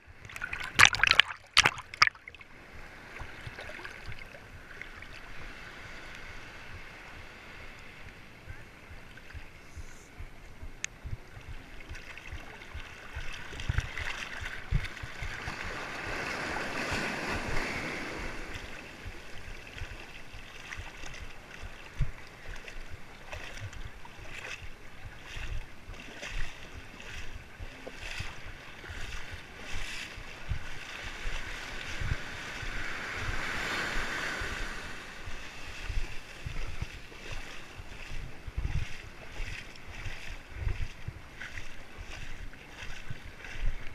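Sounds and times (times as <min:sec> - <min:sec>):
small waves washing: 0:00.0 - 0:43.9
water slapping camera: 0:00.1 - 0:02.5, 0:08.9 - 0:17.7.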